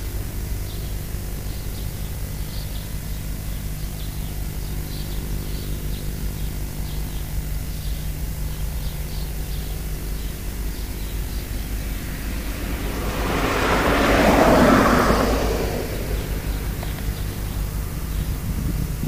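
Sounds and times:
low hum: 0:07.5 - 0:19.0.

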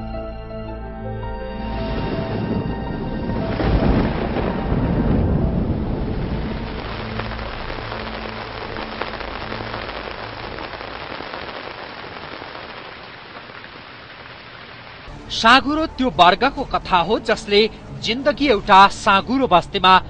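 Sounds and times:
low rumble: 0:01.5 - 0:11.4
steady rain: 0:01.7 - 0:17.5.

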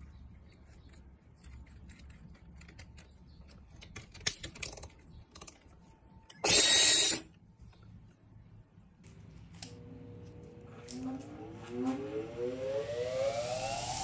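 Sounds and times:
drill motor running: 0:06.4 - 0:07.2.

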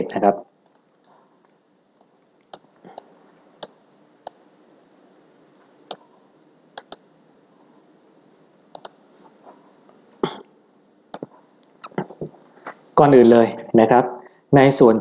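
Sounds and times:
computer mouse clicking: 0:00.6 - 0:01.1, 0:02.0 - 0:04.4, 0:06.8 - 0:07.1, 0:08.7 - 0:09.0, 0:11.1 - 0:12.5.

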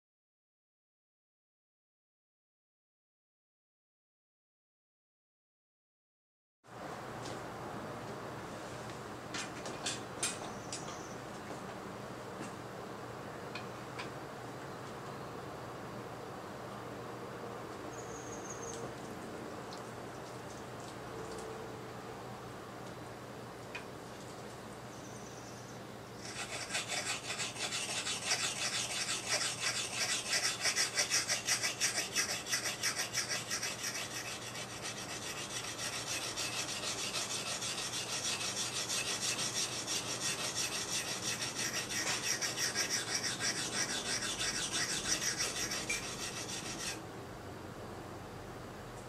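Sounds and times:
blade rubbing on a whetstone: 0:26.2 - 0:47.0.

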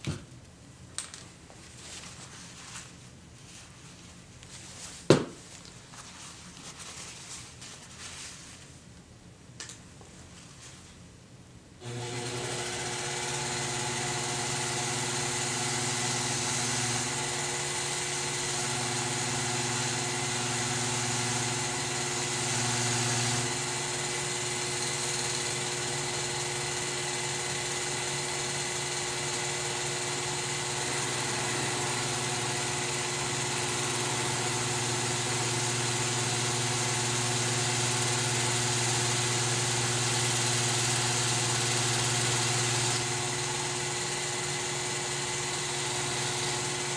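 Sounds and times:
motor humming: 0:11.8 - 0:46.9.

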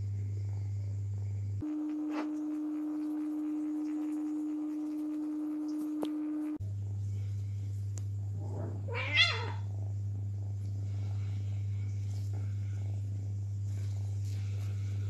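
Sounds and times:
electrical hum: 0:00.0 - 0:15.0
cat crying: 0:08.9 - 0:09.7.

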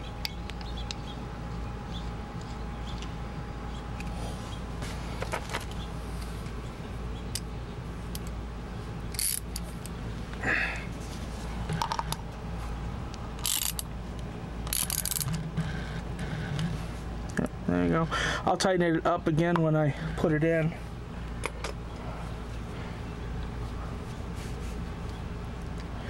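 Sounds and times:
steady low rumble: 0:00.0 - 0:26.0
metal parts clicking and scraping: 0:09.1 - 0:09.9, 0:13.4 - 0:13.9, 0:14.6 - 0:15.5.

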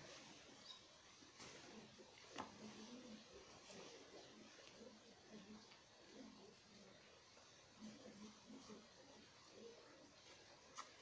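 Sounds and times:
faint high chirp: 0:00.5 - 0:01.0.

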